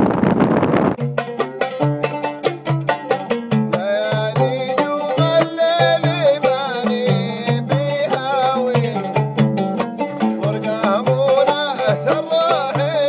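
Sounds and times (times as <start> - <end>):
oud plucked: 0.0 - 13.0
hand drum beating: 0.4 - 13.0
man singing: 3.7 - 9.4, 10.2 - 13.0.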